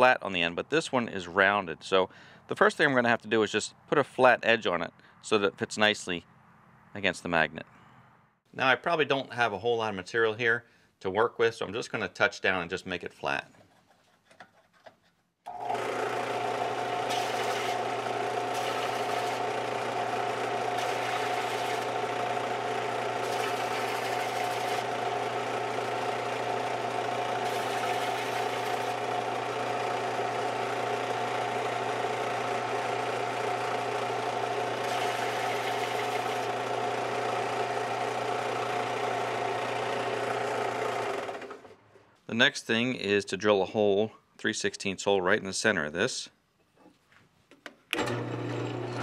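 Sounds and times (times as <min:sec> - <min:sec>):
belt sander motor hum: 0:15.5 - 0:41.8, 0:48.0 - 0:49.0
plastic being sanded: 0:16.9 - 0:19.6, 0:20.4 - 0:25.0, 0:27.0 - 0:29.0.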